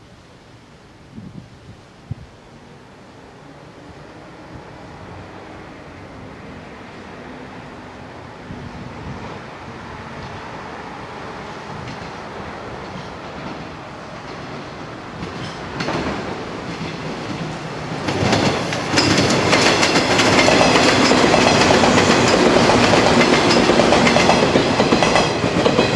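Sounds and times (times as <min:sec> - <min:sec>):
train wheels clattering over rail joints: 0:11.7 - 0:25.9.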